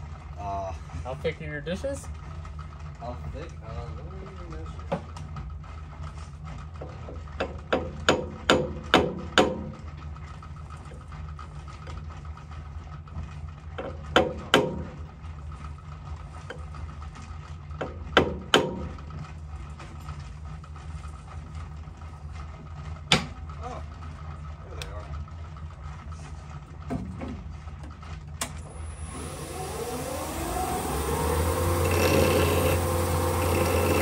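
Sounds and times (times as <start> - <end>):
low machine hum: 0.0 - 34.0.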